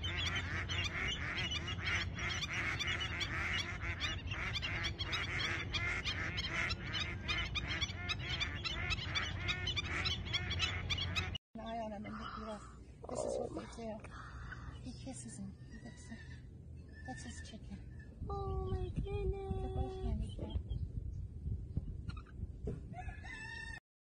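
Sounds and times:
geese honking: 0.0 - 11.4.

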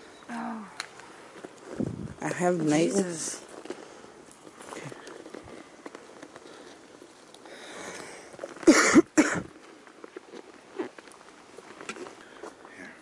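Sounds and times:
noisy breath: 3.6 - 5.7, 6.3 - 8.5, 12.0 - 13.0
person coughing: 8.7 - 9.5.

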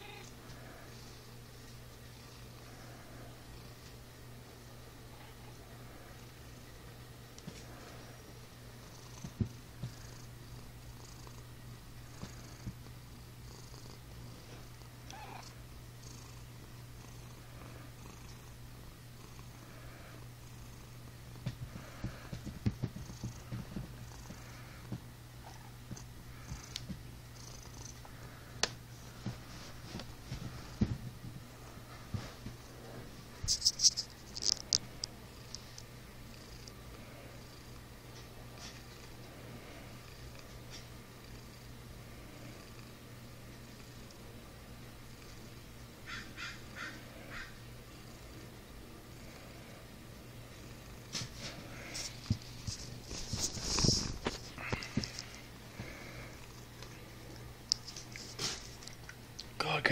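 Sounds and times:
cat purring: 7.5 - 33.8, 34.4 - 45.8, 46.5 - 59.0
scratchy rustles: 33.4 - 34.8, 51.1 - 56.0, 57.8 - 59.0.

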